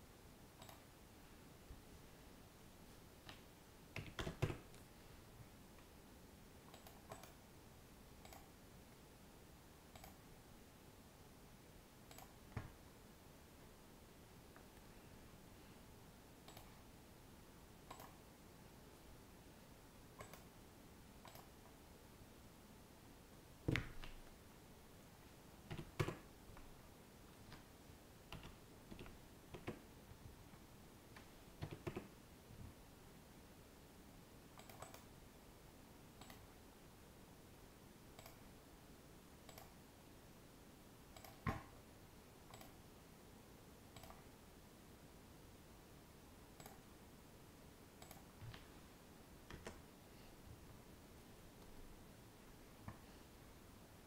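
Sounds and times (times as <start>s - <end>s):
mouse clicks: 0.6s - 0.9s, 6.7s - 7.4s, 8.2s - 8.6s, 9.9s - 10.2s, 12.1s - 12.8s, 16.4s - 16.7s, 17.9s - 18.2s, 20.2s - 20.5s, 21.2s - 21.6s, 34.6s - 35.1s, 36.2s - 36.5s, 38.2s - 38.4s, 39.5s - 39.8s, 41.2s - 41.7s, 42.5s - 42.8s, 43.9s - 44.2s, 46.6s - 46.9s, 48.0s - 48.6s
computer keyboard keystrokes: 4.0s - 4.8s, 25.7s - 26.3s, 28.3s - 29.8s, 31.6s - 32.1s, 34.6s - 35.1s.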